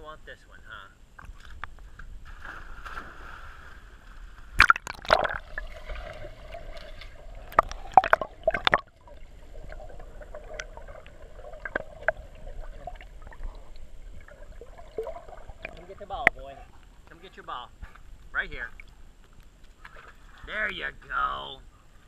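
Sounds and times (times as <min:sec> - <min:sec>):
muffled water splashing and gurgling: 0:01.1 - 0:17.1.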